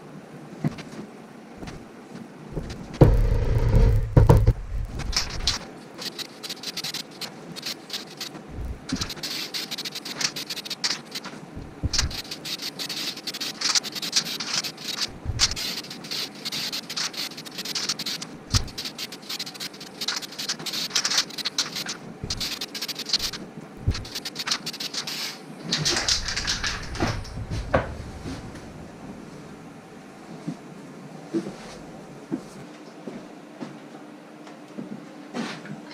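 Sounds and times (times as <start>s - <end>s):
spray paint can hissing: 5.0s - 27.4s.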